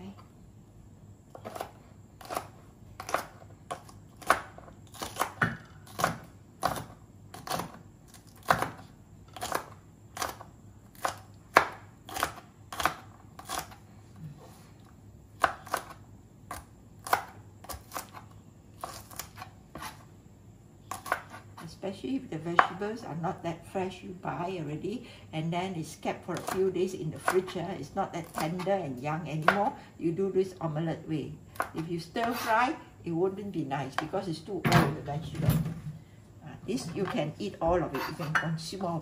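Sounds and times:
cleaver chopping on plastic board: 8.4s - 8.8s.

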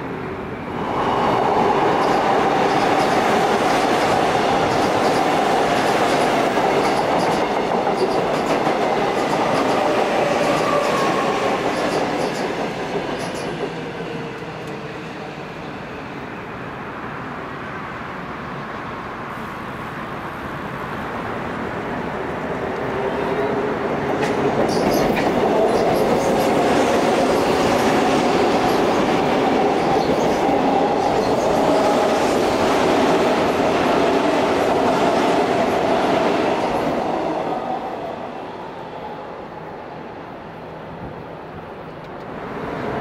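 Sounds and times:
train whine: 0.0s - 43.0s
train wheels clattering: 2.0s - 13.9s, 24.1s - 32.1s.

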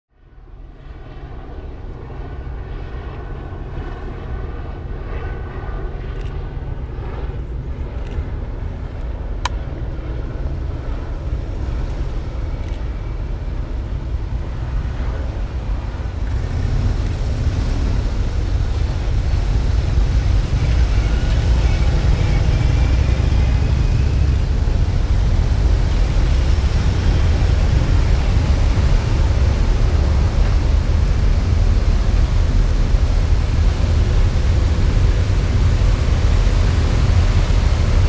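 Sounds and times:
motorcycle and car engines rumbling: 14.4s - 38.0s.

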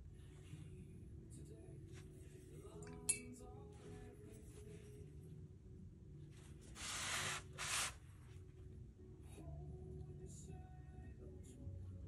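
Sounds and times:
paper sliding across table: 6.7s - 8.0s.

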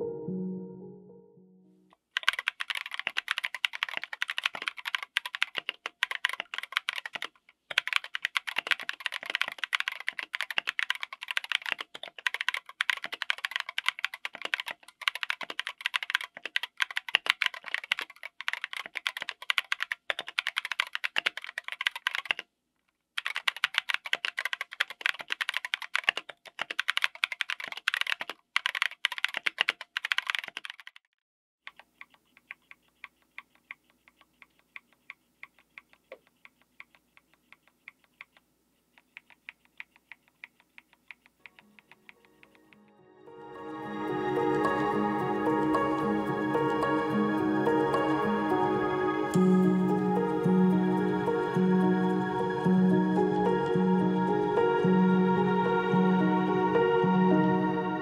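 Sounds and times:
fast typing on mechanical keyboard: 2.2s - 22.5s, 23.2s - 42.8s.

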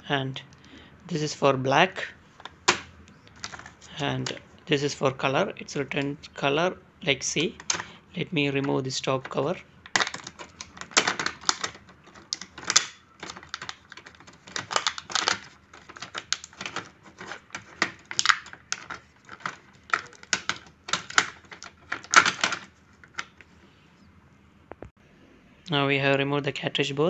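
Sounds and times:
plastic packaging crackling: 2.3s - 4.5s, 7.3s - 23.6s.

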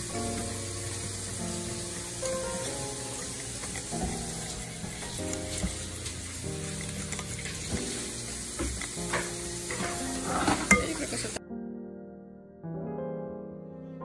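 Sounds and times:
background music: 0.0s - 14.0s
whisk stirring batter in a bowl: 0.9s - 11.3s.

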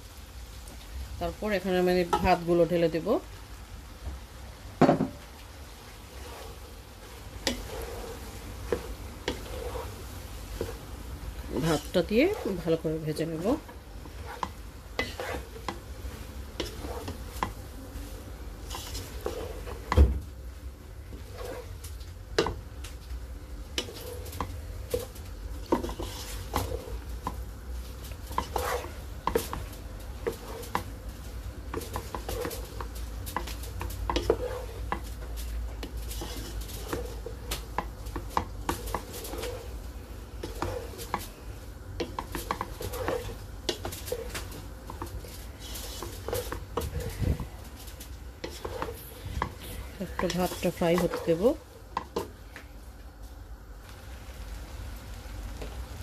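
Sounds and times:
wooden spatula scraping rice: 5.6s - 52.5s.

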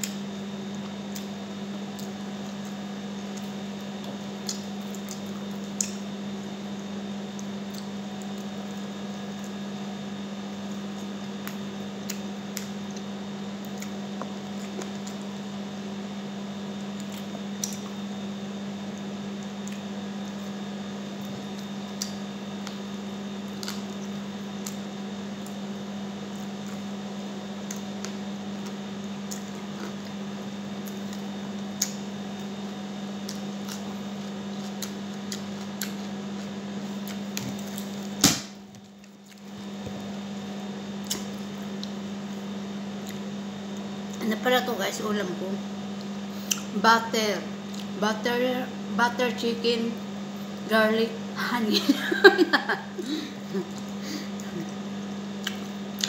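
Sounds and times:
chewing and smacking: 0.0s - 9.6s, 10.7s - 15.4s, 16.8s - 18.0s, 18.9s - 20.6s, 21.2s - 27.0s, 27.6s - 38.1s, 38.8s - 40.2s, 41.0s - 42.0s, 42.9s - 44.2s, 46.0s - 46.7s, 47.7s - 48.0s, 53.6s - 56.0s.

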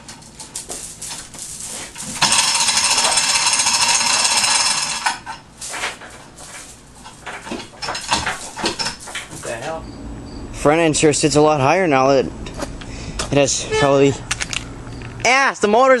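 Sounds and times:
chain hoist rattling: 0.2s - 5.4s
clinks and knocks of chain: 0.6s - 5.3s.

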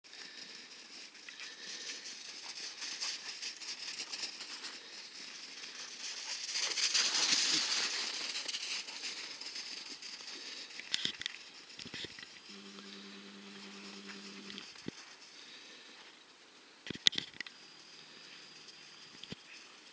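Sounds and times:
steady low hum: 12.4s - 14.9s.

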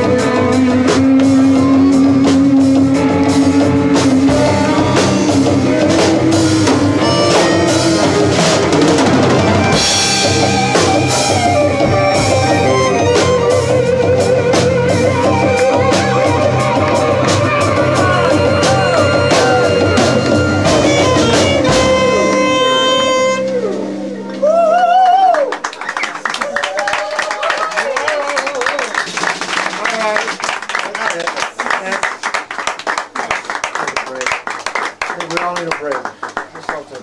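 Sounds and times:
live rock band playing: 0.0s - 24.9s.

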